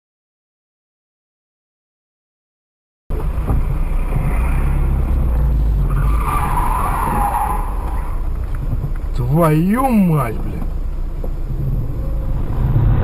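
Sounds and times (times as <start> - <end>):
car engine rumble inside cabin: 3.1 - 13.0
road noise: 3.1 - 13.0
car tyres skidding: 3.2 - 13.0.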